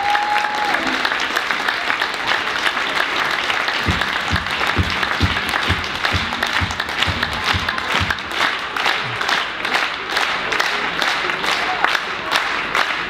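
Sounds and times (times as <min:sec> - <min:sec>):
audience applauding: 0:00.0 - 0:13.0
low drum beat: 0:03.8 - 0:08.5.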